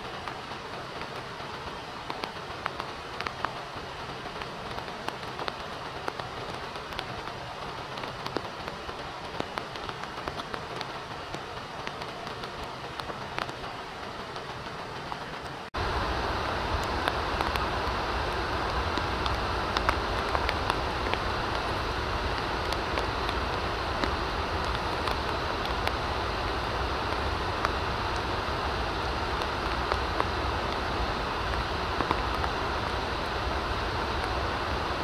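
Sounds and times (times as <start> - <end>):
rain falling: 0.0 - 35.0.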